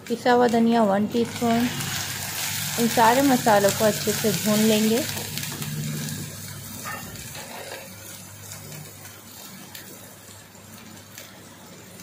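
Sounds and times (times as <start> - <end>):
food sizzling in a pot: 0.0 - 12.0
water pouring into pot: 1.3 - 6.4.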